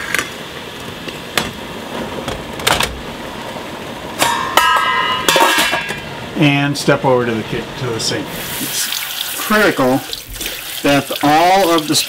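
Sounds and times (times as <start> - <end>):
metal lid clanking on pot: 4.2 - 6.0
steady hiss: 5.4 - 12.0.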